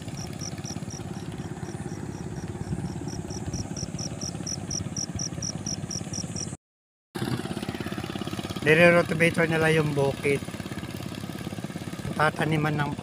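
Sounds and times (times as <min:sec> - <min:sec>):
insect chirping: 0:00.0 - 0:06.6
small engine chugging: 0:00.0 - 0:06.6, 0:07.2 - 0:13.0.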